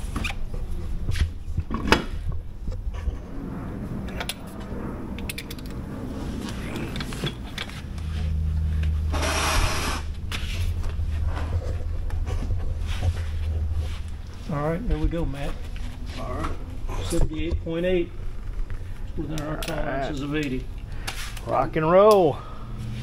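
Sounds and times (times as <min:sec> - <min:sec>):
steady low hum: 0:00.0 - 0:23.0
hiss: 0:09.1 - 0:10.1.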